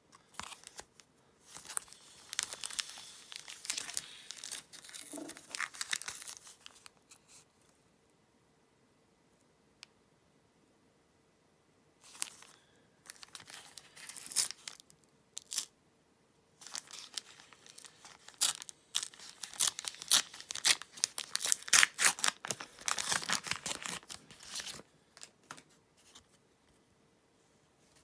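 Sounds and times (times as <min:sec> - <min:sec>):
wrapper tearing and crinkling: 0:01.5 - 0:06.9, 0:13.1 - 0:15.7, 0:16.6 - 0:24.8.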